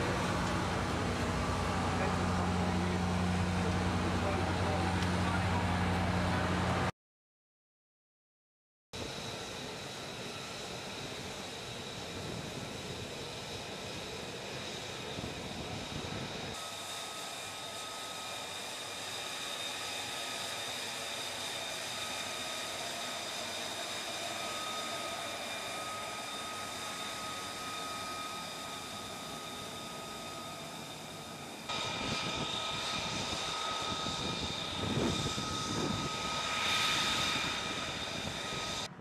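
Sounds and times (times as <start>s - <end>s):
jet engine idling: 0.0s - 6.9s, 9.0s - 39.0s.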